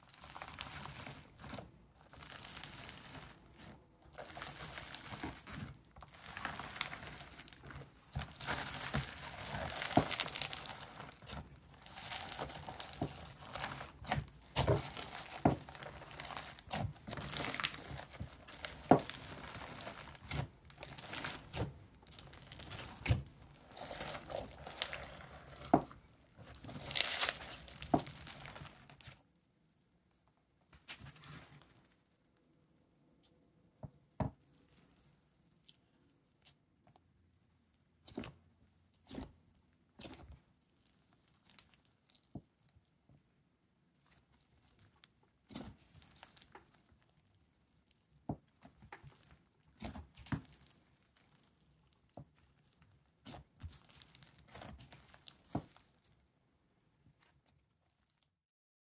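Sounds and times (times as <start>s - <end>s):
foam-bead slime crunching: 0.0s - 29.5s, 38.0s - 42.8s, 44.0s - 56.3s
slime popping: 4.2s - 29.2s.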